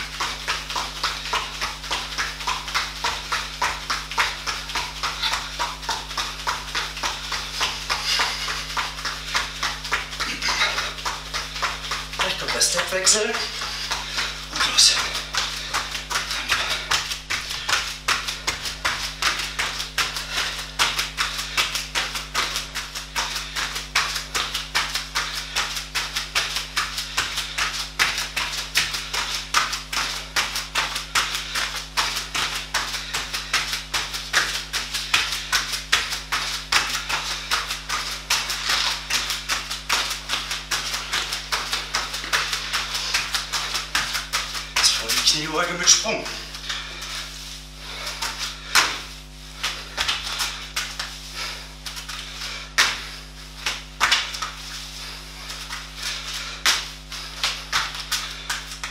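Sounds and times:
bare feet tapping on foam mat: 0:00.0 - 0:58.9.

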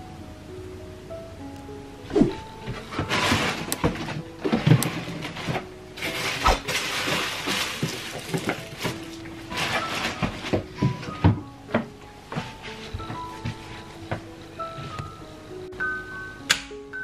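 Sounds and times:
rustling in a drawer and box: 0:02.3 - 0:15.2.

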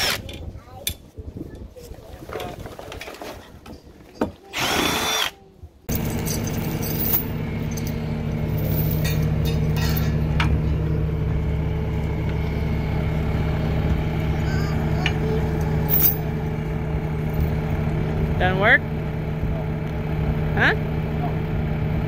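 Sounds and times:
cordless drill whirring: 0:04.5 - 0:05.4
metallic clinks of chain: 0:05.9 - 0:10.1, 0:15.9 - 0:16.3
loader engine idling: 0:05.9 - 0:22.0.

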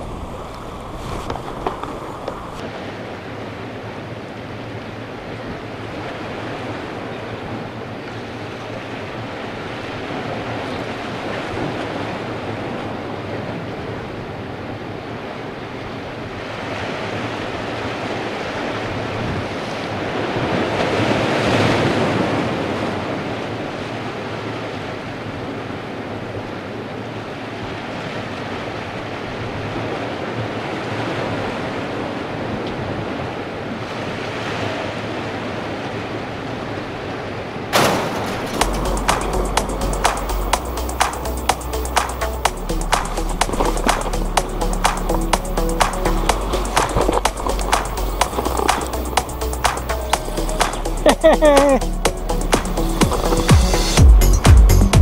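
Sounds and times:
surf washing against rock wall: 0:00.0 - 0:03.2, 0:37.6 - 0:54.0.

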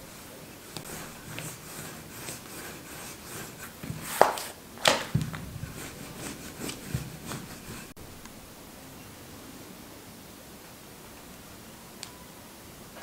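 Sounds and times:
rolling pin rubbing on dough: 0:00.0 - 0:08.0
rolling pin light knocks: 0:03.8 - 0:07.6.

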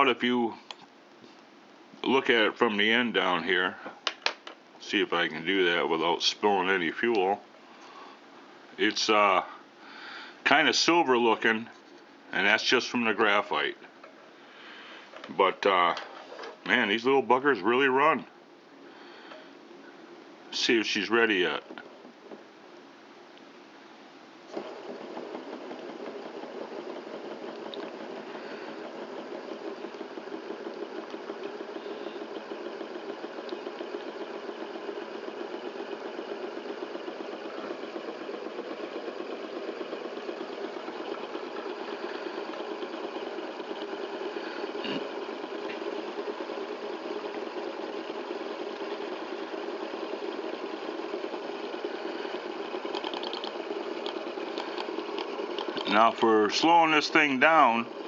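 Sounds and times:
stirling engine running: 0:24.5 - 0:58.0.

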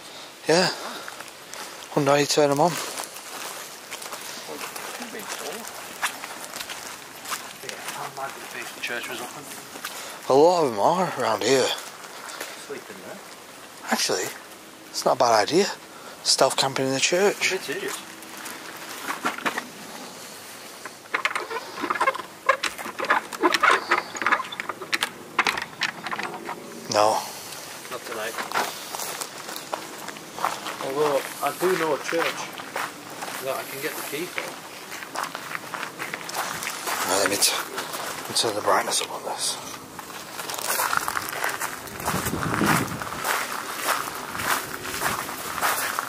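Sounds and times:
footsteps on gravel: 0:01.0 - 0:14.3, 0:16.4 - 0:46.0
plastic bags rustling: 0:17.0 - 0:46.0.

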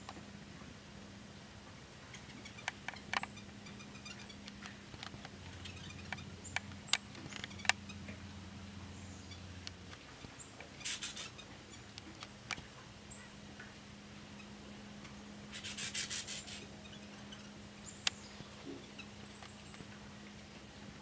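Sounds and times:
small birds chattering: 0:02.1 - 0:21.0
high thin bird calls: 0:10.2 - 0:11.9, 0:15.5 - 0:19.8.

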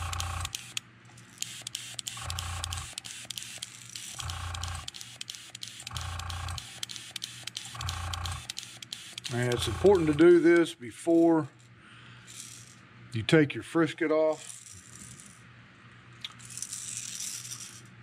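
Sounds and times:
airbrush spraying bursts: 0:01.4 - 0:10.2.

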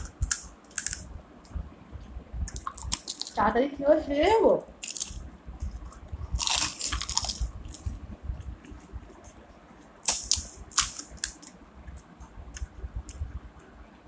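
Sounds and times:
crisp shells crunching: 0:00.0 - 0:01.1, 0:02.5 - 0:03.4, 0:04.8 - 0:05.2, 0:06.4 - 0:07.9, 0:10.0 - 0:11.5.

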